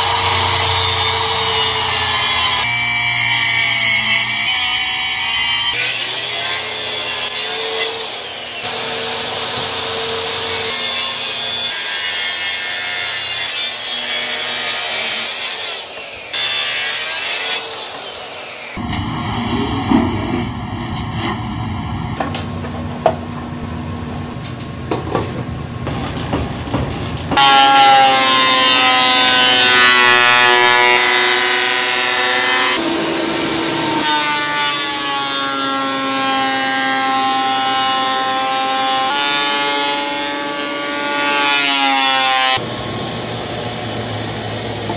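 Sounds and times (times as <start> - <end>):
track saw cutting plywood: 0.0 - 22.4
thickness planer whining: 0.0 - 22.8, 26.7 - 44.9.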